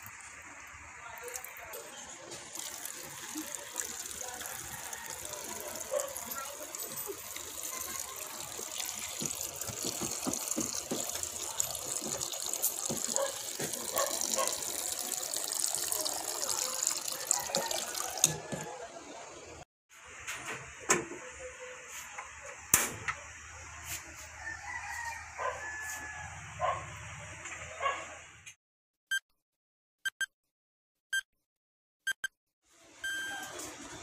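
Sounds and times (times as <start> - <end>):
water pouring into a pot: 0.0 - 18.7.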